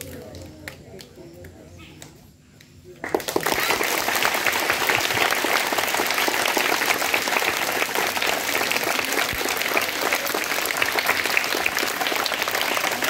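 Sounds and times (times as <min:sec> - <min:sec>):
crowd applauding: 0:03.0 - 0:13.0.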